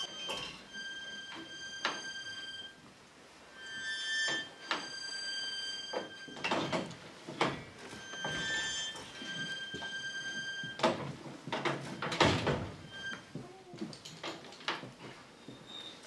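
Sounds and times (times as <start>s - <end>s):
knocks and rattles: 6.0s - 9.6s, 10.7s - 12.9s.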